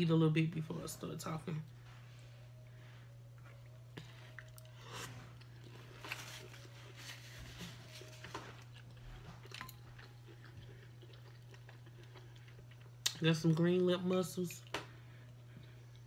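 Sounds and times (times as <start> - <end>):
steady low hum: 0.0 - 16.0
person chewing: 3.4 - 6.8, 8.0 - 13.2.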